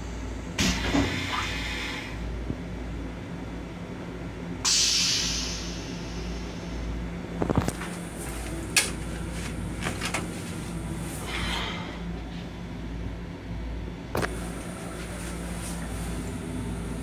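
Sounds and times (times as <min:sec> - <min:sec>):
train running rumble: 0:00.0 - 0:17.0.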